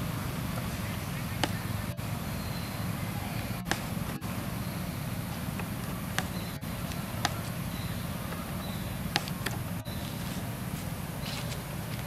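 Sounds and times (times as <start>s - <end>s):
steady low rumble: 0.0s - 12.0s
faint high chirps: 0.6s - 10.3s.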